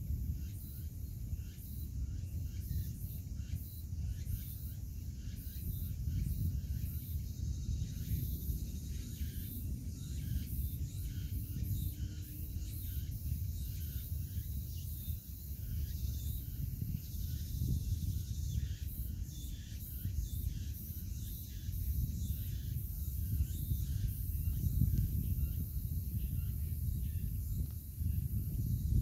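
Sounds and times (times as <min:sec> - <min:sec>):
wind rumble on microphone: 0:00.0 - 0:29.0.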